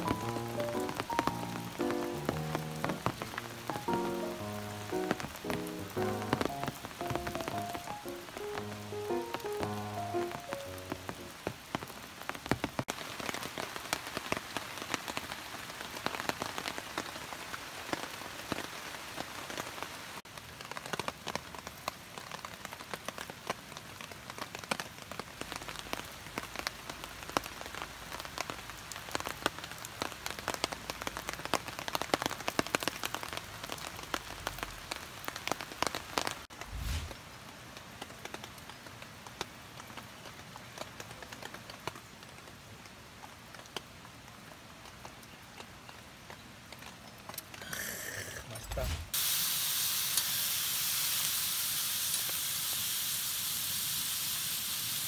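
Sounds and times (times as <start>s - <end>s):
rain on a tarp: 0.0s - 55.0s.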